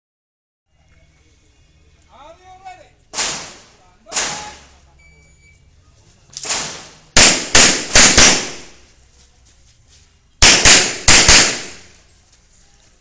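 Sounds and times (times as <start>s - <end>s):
gunshots with short echo: 3.2s - 4.6s, 6.4s - 8.8s, 10.4s - 11.9s.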